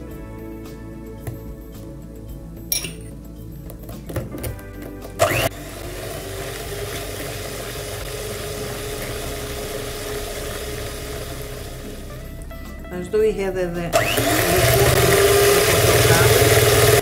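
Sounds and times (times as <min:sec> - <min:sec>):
electric hand mixer whisking: 0:05.2 - 0:12.1, 0:13.9 - 0:17.0.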